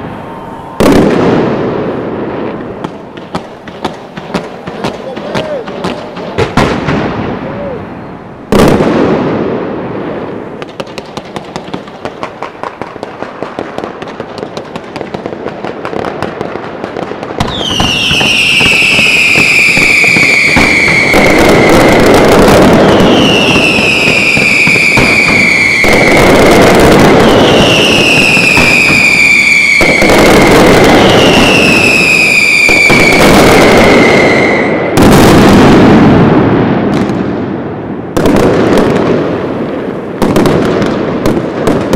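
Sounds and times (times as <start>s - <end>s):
firework whistles falling in pitch: 0.0s - 3.1s, 17.4s - 35.2s
firework bang: 0.0s - 7.5s, 8.5s - 41.9s
continuous rush of firework bursts: 0.0s - 41.9s.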